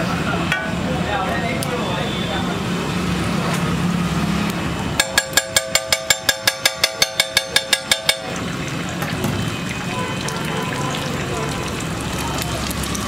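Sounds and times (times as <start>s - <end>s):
steady background noise: 0.0s - 13.0s
rapid ringing metallic tapping: 5.0s - 8.6s.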